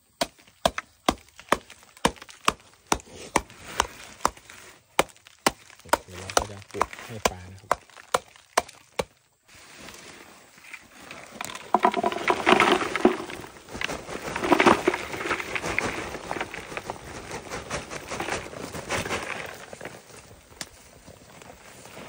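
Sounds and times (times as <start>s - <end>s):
knife chopping into earth: 0.2s - 9.2s
earth pattering into bucket: 0.6s - 22.0s
plastic sack rustling: 9.5s - 22.0s.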